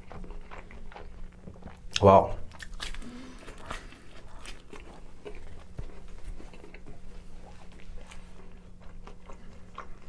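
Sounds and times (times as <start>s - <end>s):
person chewing pizza: 0.0s - 10.0s.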